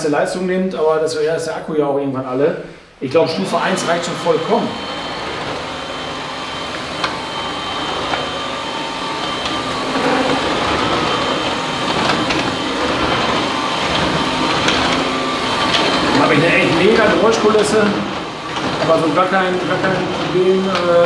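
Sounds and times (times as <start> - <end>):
vacuum cleaner running on hard floor: 3.2 - 21.0.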